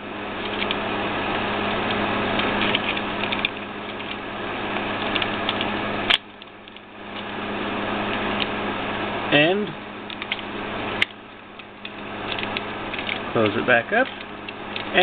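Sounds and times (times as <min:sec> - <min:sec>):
plastic parts clicking: 0:14.0 - 0:15.0.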